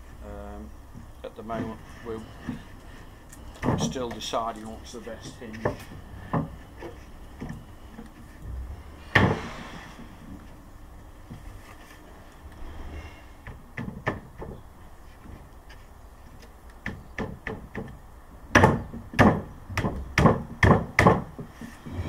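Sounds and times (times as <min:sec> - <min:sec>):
wooden panels knocking: 0:05.2 - 0:10.5, 0:13.4 - 0:14.7, 0:16.3 - 0:21.7.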